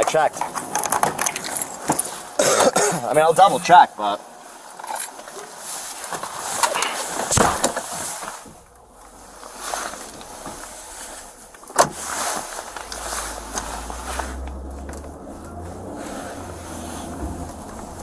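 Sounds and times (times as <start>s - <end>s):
car rumble: 6.3s - 18.0s
clothing rubbing on camera: 9.1s - 14.5s.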